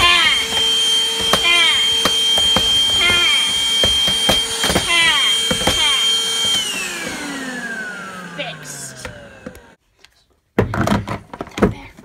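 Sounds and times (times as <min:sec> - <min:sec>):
vacuum nozzle knocking: 0:00.0 - 0:07.4
handheld vacuum whining: 0:00.0 - 0:09.8
motor spinning down: 0:00.0 - 0:09.8.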